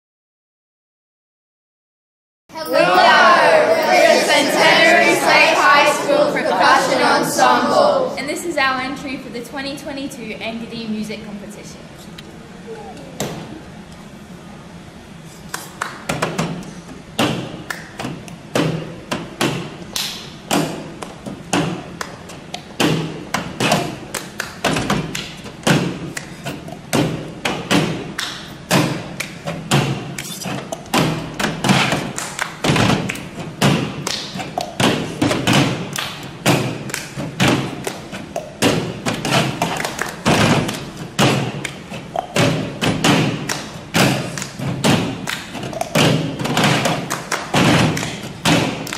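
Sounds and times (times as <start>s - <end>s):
hands clapping in time: 15.5s - 16.7s, 17.6s - 18.4s, 23.3s - 26.6s, 28.1s - 30.3s, 31.9s - 33.3s, 34.0s - 38.6s, 39.2s - 42.5s, 43.3s - 48.9s.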